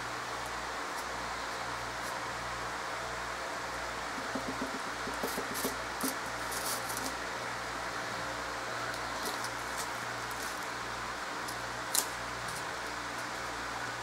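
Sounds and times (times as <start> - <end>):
low hum and hiss of room noise: 0.0 - 14.0
faint clicks and rustles of foam: 5.2 - 7.3, 8.8 - 14.0.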